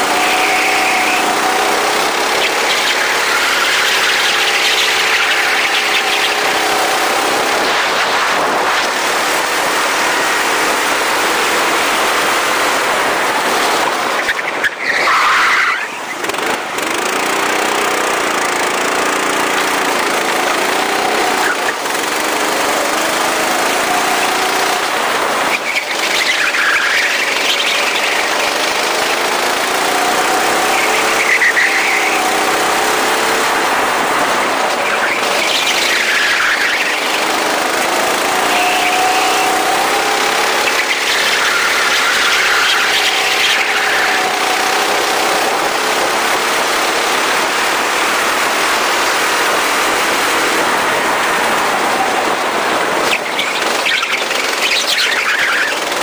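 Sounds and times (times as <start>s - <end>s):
tyre squeals: 0.0s - 7.1s, 14.2s - 16.3s, 22.9s - 33.5s, 34.6s - 45.8s
go-kart engine revving: 0.0s - 56.0s
steady rushing noise: 0.0s - 56.0s.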